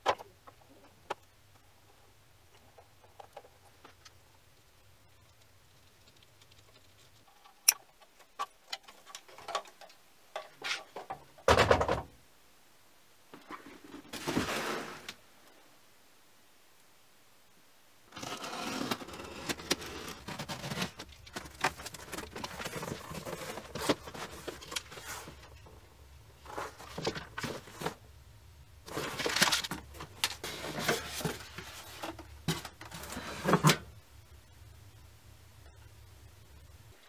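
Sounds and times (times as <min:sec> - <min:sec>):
paper and cardboard rustling: 0:13.4 - 0:15.1, 0:18.1 - 0:25.8, 0:26.4 - 0:28.0, 0:28.8 - 0:33.9
plastic wrap crinkling: 0:18.1 - 0:25.7.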